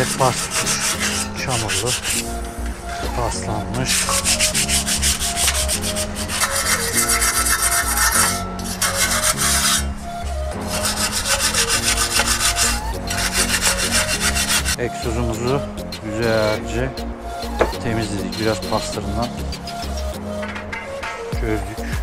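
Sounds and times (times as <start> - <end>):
sandpaper rubbing metal pipe: 0.0 - 2.4, 3.0 - 15.6.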